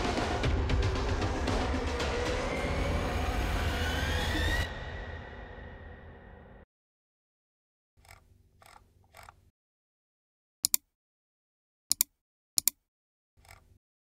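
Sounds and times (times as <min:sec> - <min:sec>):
computer mouse double clicks: 0:08.0 - 0:09.4, 0:10.6 - 0:10.8, 0:11.9 - 0:12.8, 0:13.4 - 0:13.8.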